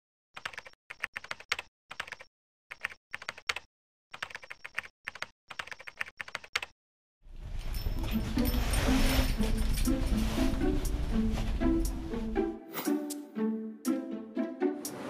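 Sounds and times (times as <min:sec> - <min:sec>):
computer keyboard typing: 0:00.4 - 0:06.7.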